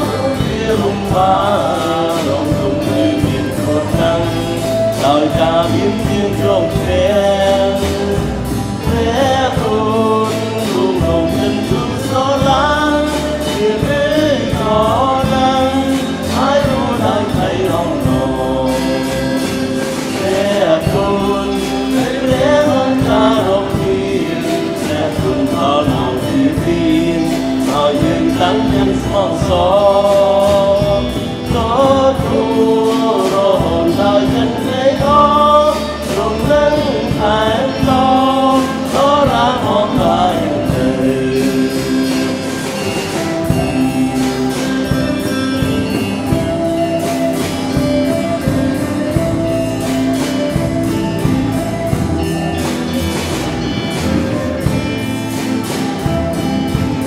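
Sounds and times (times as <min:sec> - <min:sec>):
choir singing worship song: 0:00.0 - 0:57.0
instrumental accompaniment: 0:00.0 - 0:57.0.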